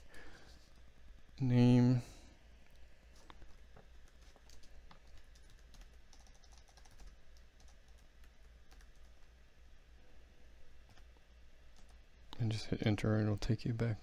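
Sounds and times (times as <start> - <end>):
low electrical hum: 0.0 - 14.0
faint keyboard typing: 2.7 - 9.3, 11.7 - 12.6.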